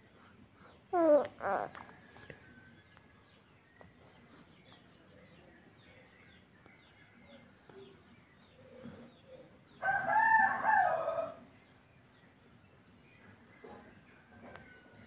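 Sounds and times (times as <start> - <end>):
rooster crowing: 9.8 - 11.4.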